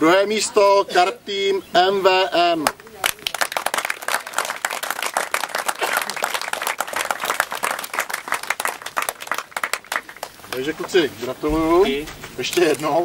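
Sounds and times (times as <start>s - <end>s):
audience applauding: 2.6s - 11.1s.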